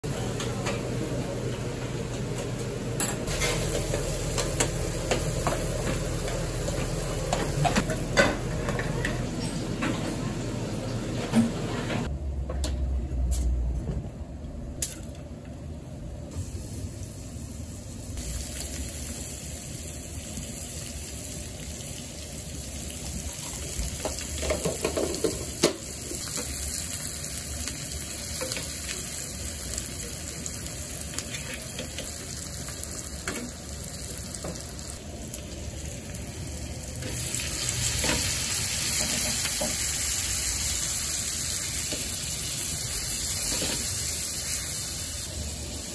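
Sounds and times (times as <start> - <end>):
food sizzling in a frying pan: 2.7 - 9.0, 16.3 - 45.9.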